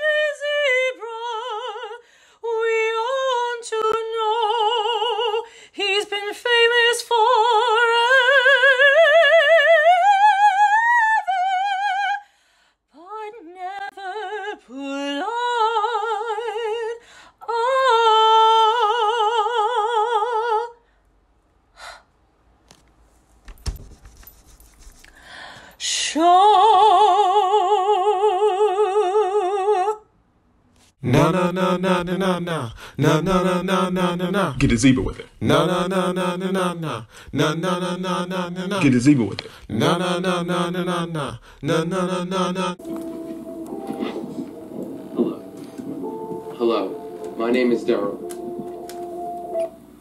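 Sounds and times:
operatic high voice singing: 31.0s - 49.7s.

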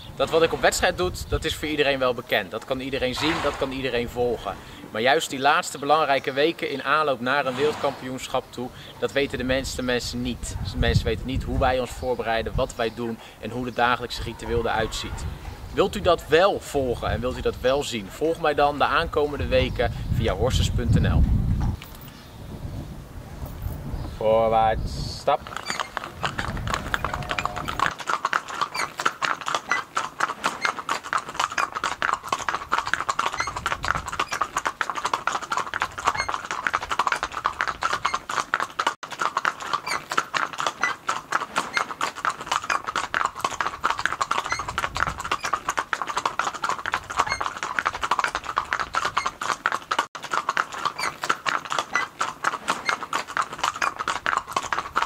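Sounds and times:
hooves clip-clopping on brick: 25.4s - 55.0s.

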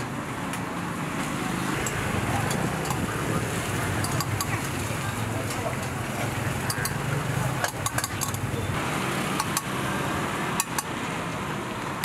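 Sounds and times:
metal spoon clinking on cups: 4.0s - 4.6s, 7.6s - 8.5s.

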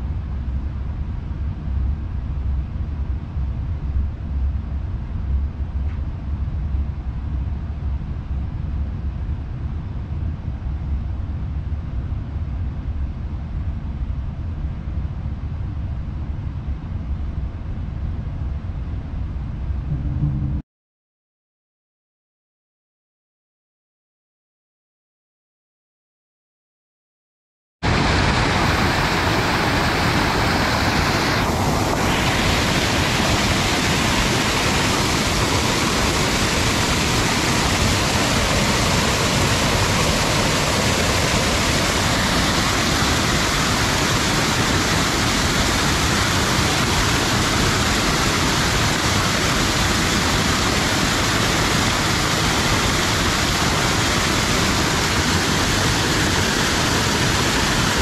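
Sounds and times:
waterfall rushing onto rocks: 27.9s - 58.0s.

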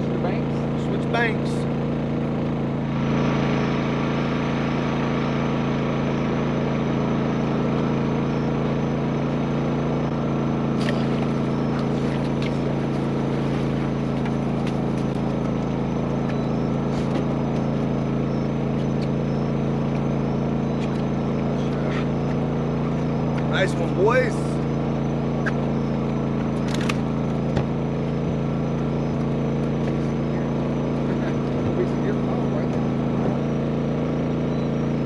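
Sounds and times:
boat motor hum: 0.0s - 35.0s
sharp clicks: 26.5s - 27.1s.

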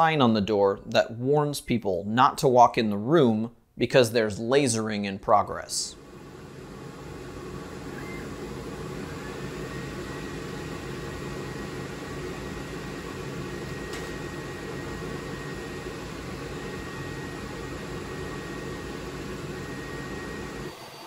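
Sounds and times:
exhaust fan noise and hum: 4.2s - 21.0s
faint high whine: 5.8s - 21.0s.

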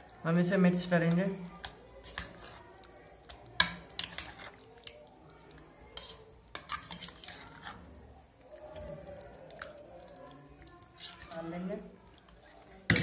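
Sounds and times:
spoon clinking and scraping bowl: 0.9s - 5.0s, 5.8s - 7.9s, 9.6s - 13.0s.

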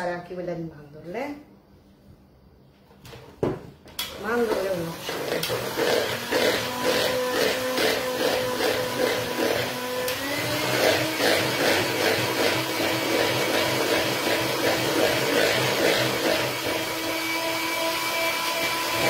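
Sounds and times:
electric hand mixer running: 4.1s - 19.0s.

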